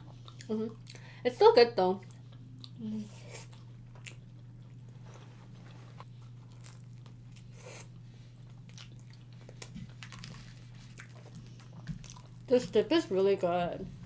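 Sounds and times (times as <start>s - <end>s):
low steady hum: 0.0s - 14.0s
pizza bites and chewing: 2.0s - 12.5s.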